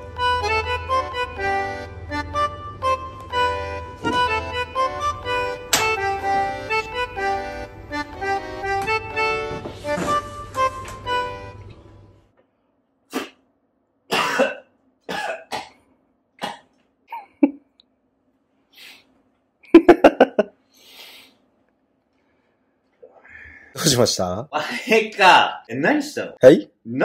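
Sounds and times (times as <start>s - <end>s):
bright background music: 0.0s - 12.0s
person coughing: 14.1s - 15.8s, 16.4s - 17.6s.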